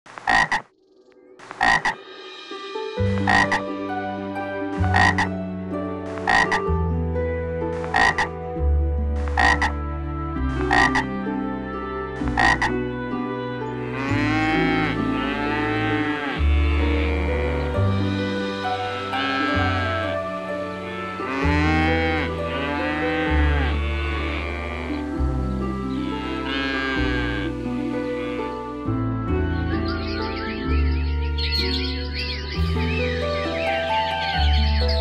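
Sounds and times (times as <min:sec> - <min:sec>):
frog croaks: 0:00.1 - 0:00.7, 0:01.5 - 0:02.0, 0:03.2 - 0:03.6, 0:04.9 - 0:05.3, 0:06.2 - 0:06.6, 0:07.9 - 0:08.3, 0:09.2 - 0:09.8, 0:10.7 - 0:11.1, 0:12.4 - 0:12.7
cow mooing: 0:09.4 - 0:09.8, 0:13.8 - 0:17.9, 0:18.7 - 0:29.0
low humming: 0:14.1 - 0:34.6.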